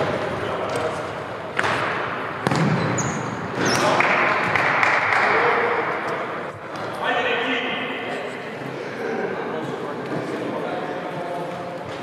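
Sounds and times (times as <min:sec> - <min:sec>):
ball kicked hard: 0:02.4 - 0:02.9
shoe squeaks on hall floor: 0:02.7 - 0:04.0.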